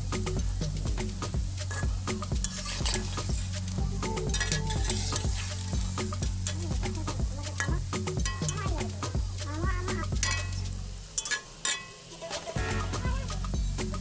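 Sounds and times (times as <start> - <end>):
steady low hum: 0.0 - 11.8
fritters sizzling in oil: 0.0 - 14.0
metal spatula scraping a pan: 1.6 - 8.6, 10.2 - 13.0.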